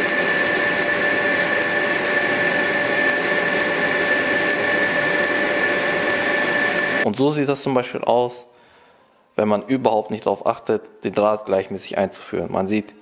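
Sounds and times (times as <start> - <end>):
welding arc hissing: 0.0 - 7.0
high-pitched whine: 0.0 - 7.1.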